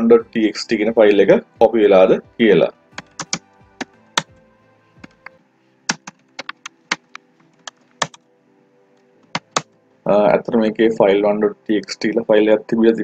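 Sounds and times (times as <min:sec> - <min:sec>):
computer keyboard clicking: 0:03.0 - 0:04.4, 0:05.9 - 0:08.2, 0:09.2 - 0:09.7.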